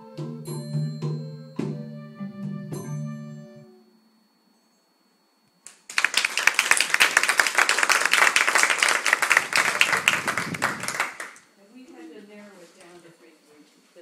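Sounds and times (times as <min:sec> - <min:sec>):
people applauding: 0:05.7 - 0:11.4.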